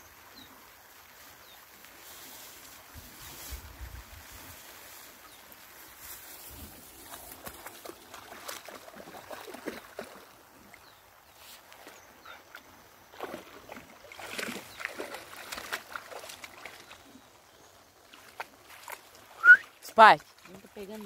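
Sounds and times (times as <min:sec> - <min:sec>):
dog splashing through water: 0:07.0 - 0:10.6, 0:13.1 - 0:17.2, 0:18.0 - 0:21.0.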